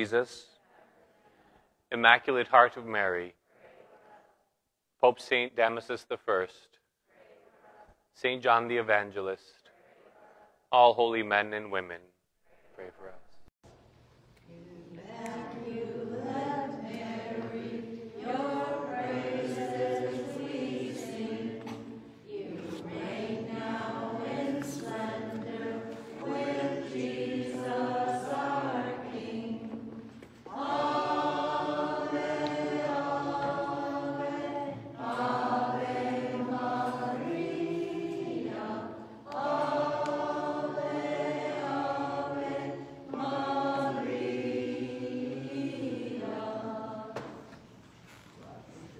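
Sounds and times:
person singing a hymn: 14.6s - 47.6s.

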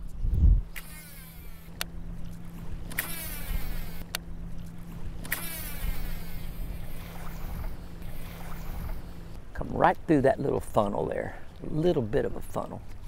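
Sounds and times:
reel clicks: 0.0s - 9.4s
fishing reel spool whirring: 0.7s - 9.4s
water lapping: 0.8s - 13.0s.

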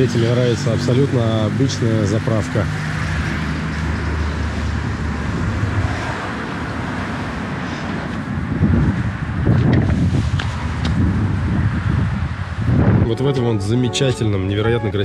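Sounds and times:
wind on microphone: 8.1s - 15.0s.

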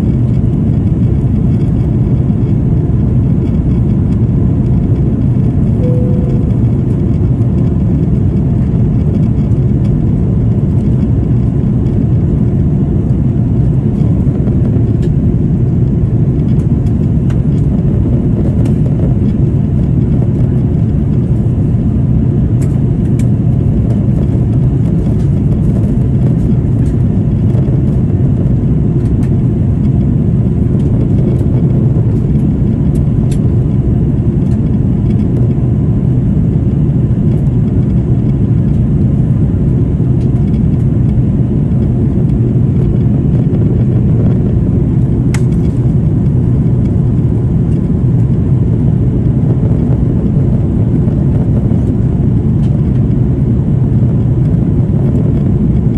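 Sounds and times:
airliner cabin rumble: 0.0s - 55.9s.

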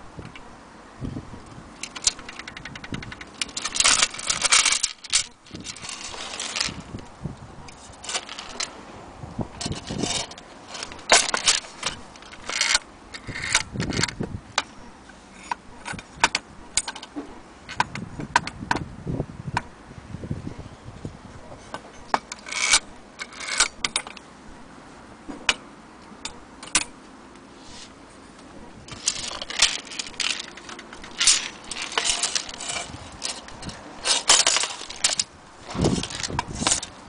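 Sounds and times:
metallic clinks and knocks: 1.8s - 7.1s, 7.7s - 8.7s, 9.6s - 14.2s, 28.9s - 37.0s
hanging chains jangling: 3.3s - 7.0s, 8.0s - 8.7s, 28.9s - 36.9s.

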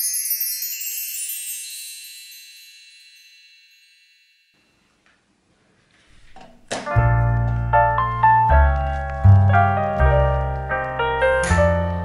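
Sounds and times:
bright high chime notes: 0.0s - 4.9s.

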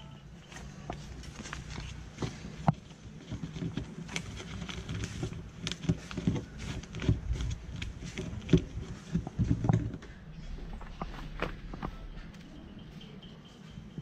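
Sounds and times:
footsteps climbing stairs: 6.0s - 14.0s
low rumble: 7.2s - 14.0s.

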